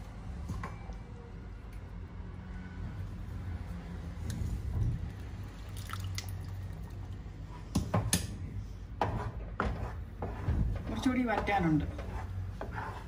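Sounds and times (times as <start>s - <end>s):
lemon juice dripping into pan: 5.5s - 7.2s
wooden spatula stirring jam: 9.0s - 13.0s.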